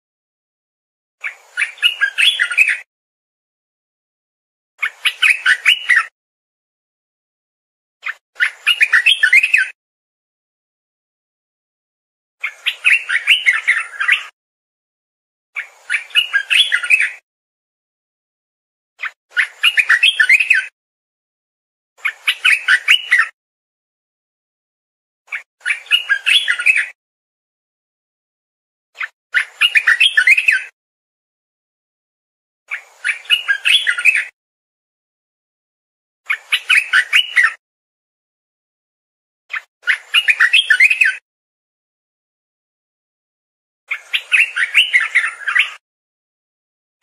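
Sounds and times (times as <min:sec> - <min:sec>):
bird song whistled notes: 0:01.2 - 0:02.9, 0:04.8 - 0:06.1, 0:08.0 - 0:09.8, 0:12.4 - 0:14.4, 0:15.6 - 0:17.2, 0:19.0 - 0:20.8, 0:22.0 - 0:23.4, 0:25.3 - 0:27.0, 0:29.0 - 0:30.8, 0:32.7 - 0:34.4, 0:36.3 - 0:37.6, 0:39.5 - 0:41.2, 0:43.9 - 0:45.8
bulbul singing: 0:15.6 - 0:17.2, 0:25.3 - 0:27.0.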